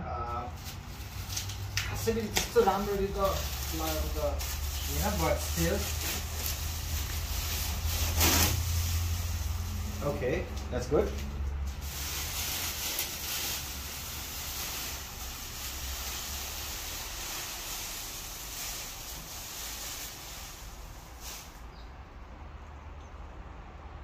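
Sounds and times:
plastic sheet rustling and crinkling: 0.3s - 21.7s.

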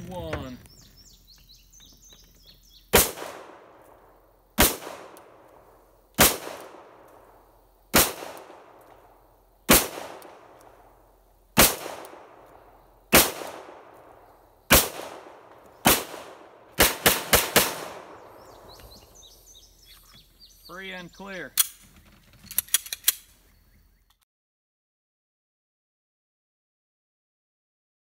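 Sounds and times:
pistol shots with echo: 2.9s - 11.0s, 11.6s - 18.8s.

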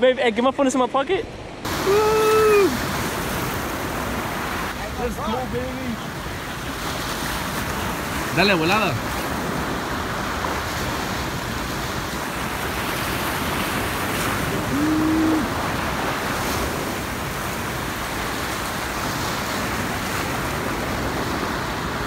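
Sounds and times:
surf breaking on rocks: 1.6s - 22.0s.

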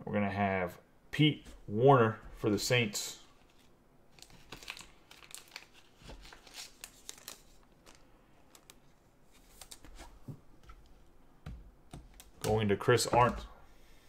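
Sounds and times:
plastic sleeve crinkles and ticks: 3.4s - 10.2s.

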